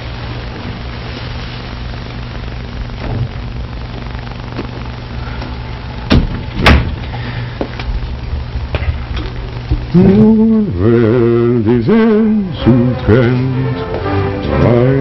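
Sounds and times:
low mains hum: 0.0s - 15.0s
steady hiss: 0.0s - 15.0s
loud knocks: 6.1s - 7.0s.

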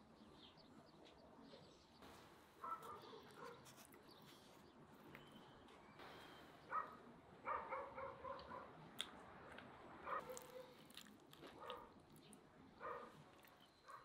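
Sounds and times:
eating sounds: 8.2s - 14.0s.

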